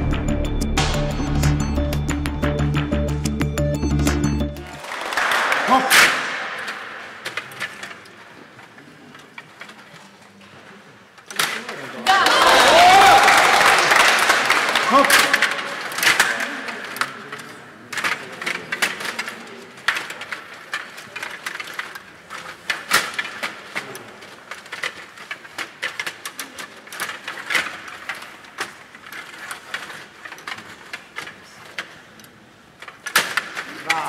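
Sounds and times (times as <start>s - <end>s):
rod hockey game clacks and rattles: 11.2s - 34.0s.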